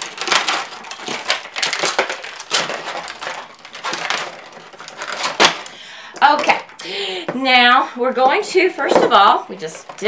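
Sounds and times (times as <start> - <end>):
makeup cases clicking and rustling: 0.0 - 5.8.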